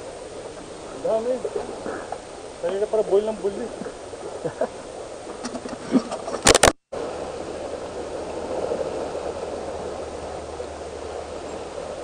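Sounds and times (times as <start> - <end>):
waves breaking on rocks: 0.0 - 12.0
sharp loud clicks: 6.4 - 6.8.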